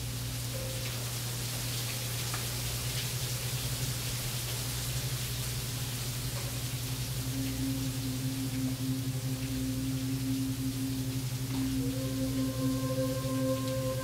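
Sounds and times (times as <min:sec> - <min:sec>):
rain-like hiss: 0:00.0 - 0:14.0
low hum: 0:07.1 - 0:14.0.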